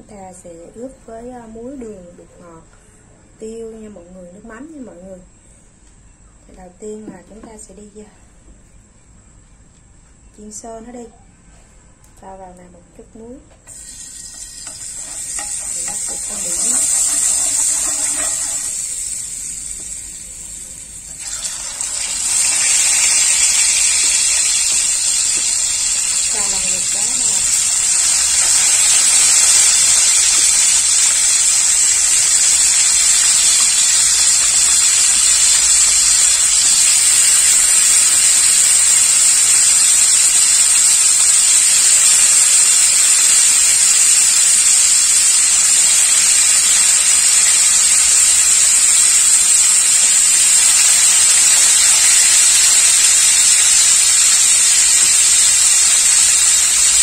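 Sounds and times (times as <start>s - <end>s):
fish frying in hot oil: 13.7s - 57.0s.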